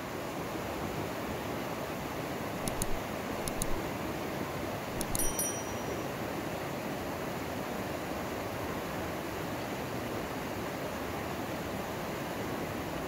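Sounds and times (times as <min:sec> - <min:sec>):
mouse clicks: 0:02.6 - 0:03.8, 0:05.0 - 0:05.3
bell-like notification chime: 0:05.0 - 0:06.2.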